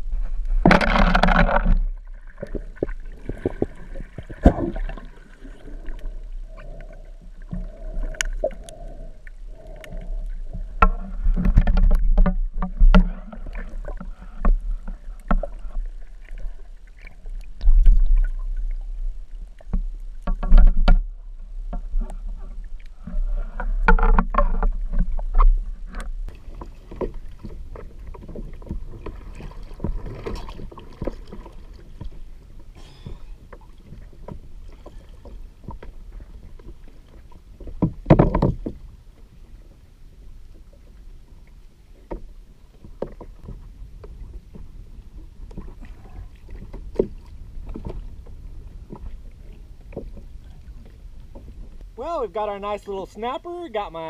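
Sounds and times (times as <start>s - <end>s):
water sloshing and splashing: 0.0s - 54.0s
knocks against kayak hull: 37.8s - 38.8s.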